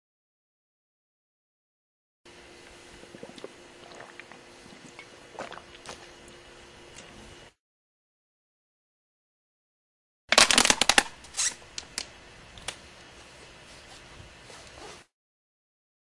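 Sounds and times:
plastic bottle crackling: 0:10.3 - 0:12.1.

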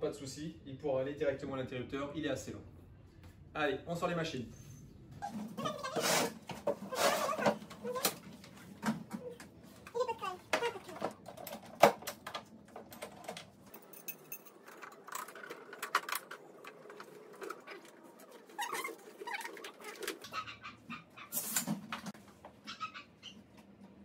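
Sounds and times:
faint animal calls: 0:17.3 - 0:21.4, 0:22.6 - 0:23.5.

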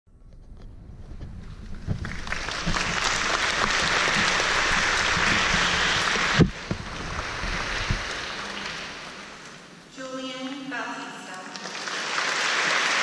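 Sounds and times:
audience applauding: 0:01.7 - 0:09.6, 0:11.5 - 0:13.0.

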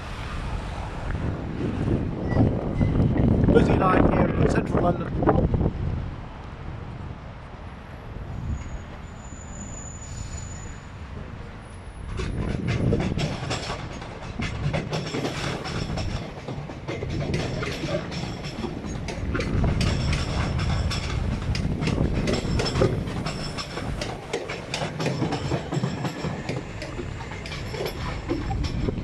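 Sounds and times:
train low rumble: 0:00.0 - 0:29.0
train wheels clattering: 0:11.8 - 0:29.0.

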